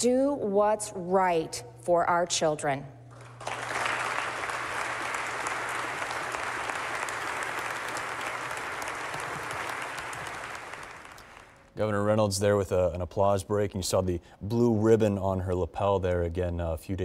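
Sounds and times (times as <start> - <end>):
large audience applauding: 3.2 - 11.7.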